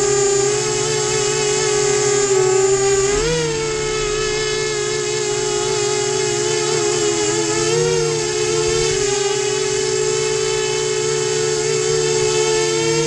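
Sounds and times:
drone propellers whining: 0.0s - 13.0s.

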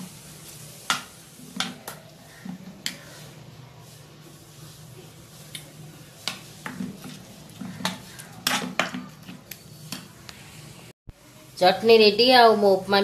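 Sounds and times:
spoon scraping metal pan: 6.2s - 10.1s.

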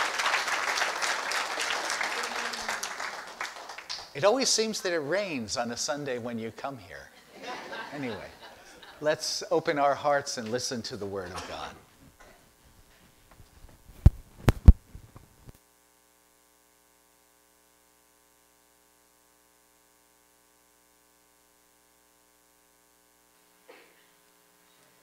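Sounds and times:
microphone handling knocks: 13.4s - 15.3s.

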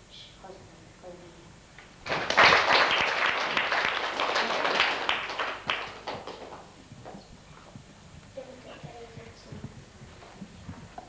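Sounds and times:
audience applauding: 2.1s - 6.7s.

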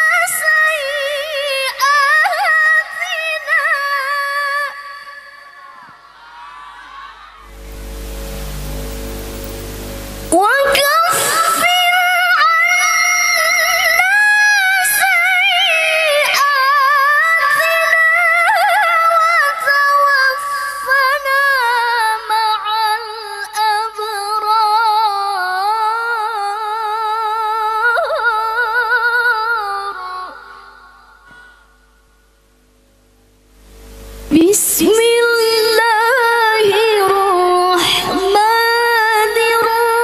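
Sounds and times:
woman reciting melodically: 0.0s - 6.0s, 10.3s - 31.4s, 34.3s - 40.0s.

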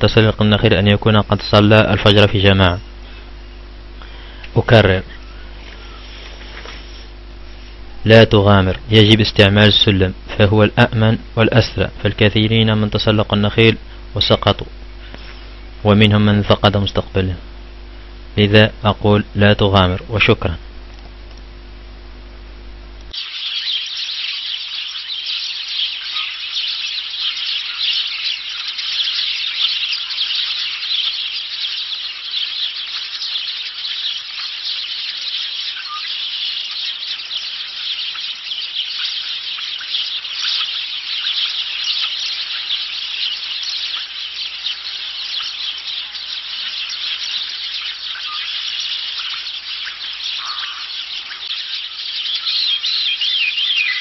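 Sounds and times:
chorus of high-pitched chirping: 0.0s - 20.6s, 23.1s - 54.0s
lower single chirps: 2.6s - 8.2s, 23.0s - 54.0s.

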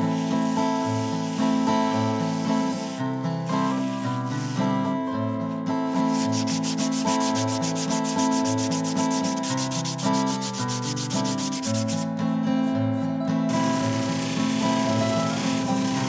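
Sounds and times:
sandpaper scratching on wood: 0.0s - 12.2s.

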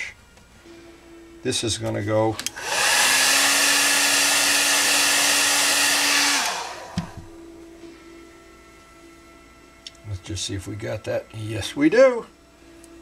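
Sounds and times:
hair dryer blowing: 2.4s - 7.4s.

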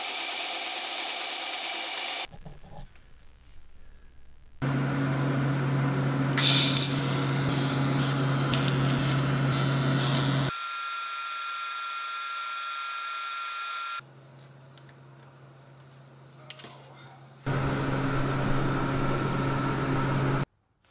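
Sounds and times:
welder electrical hum: 2.2s - 14.0s, 17.5s - 20.5s
welding arc hissing and crackling: 6.4s - 10.6s.

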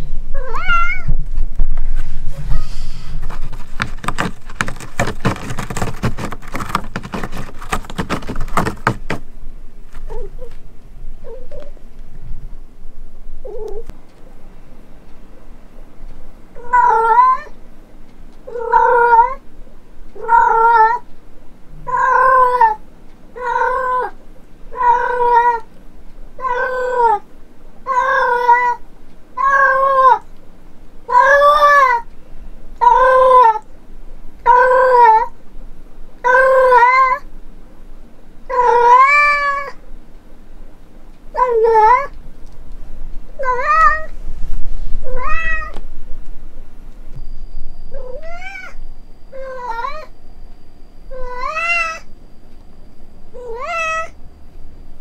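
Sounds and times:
cat meowing loudly: 0.4s - 1.2s, 43.4s - 44.1s, 45.1s - 45.8s, 48.0s - 48.8s, 51.1s - 52.1s, 53.4s - 54.2s.

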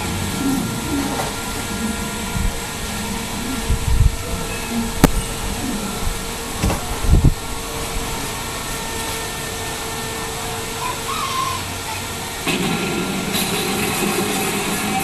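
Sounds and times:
machine hum and hiss: 0.0s - 15.0s
soft low knocks: 0.3s - 7.5s.

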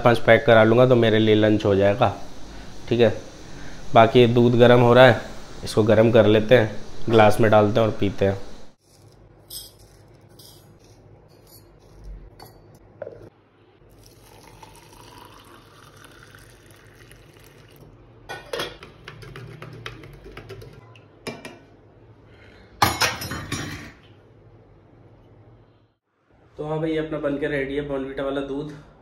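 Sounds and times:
steel utensils clinking: 8.8s - 12.8s
milk pouring into steel tumbler: 13.9s - 17.9s.

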